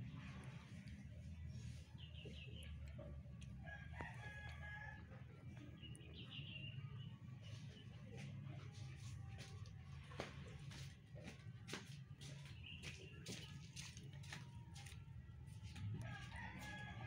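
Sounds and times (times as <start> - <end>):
faint rooster crowing: 3.4 - 6.0, 14.8 - 17.0.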